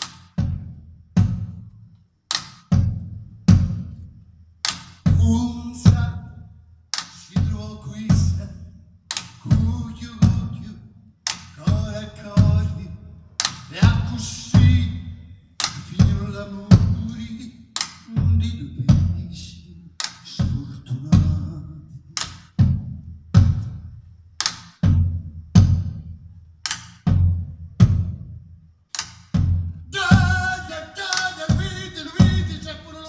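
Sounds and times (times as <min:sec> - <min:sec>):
deep drum strokes: 0:00.0 - 0:01.6, 0:02.7 - 0:04.0, 0:05.0 - 0:06.3, 0:07.3 - 0:08.5, 0:11.6 - 0:12.9, 0:13.7 - 0:15.2, 0:15.8 - 0:17.3, 0:22.5 - 0:23.9, 0:24.8 - 0:26.2, 0:27.0 - 0:28.3, 0:29.2 - 0:30.8, 0:31.4 - 0:32.8.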